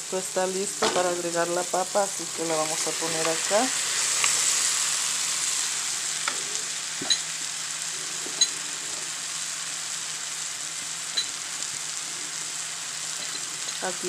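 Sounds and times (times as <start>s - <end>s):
potato sizzling in hot oil: 0.0s - 14.0s.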